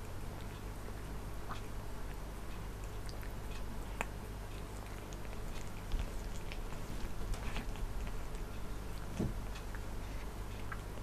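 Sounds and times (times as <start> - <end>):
steady low hum: 0.0 - 11.0
cat licking its fur: 2.8 - 11.0.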